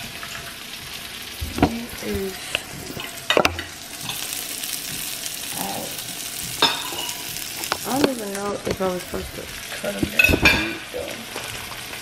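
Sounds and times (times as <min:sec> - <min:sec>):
sausage sizzling in frying pan: 0:00.0 - 0:12.0.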